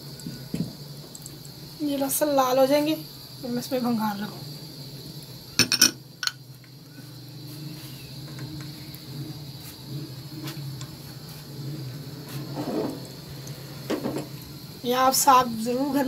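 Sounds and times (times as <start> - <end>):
garlic sizzling in a pan: 0.0 - 16.0.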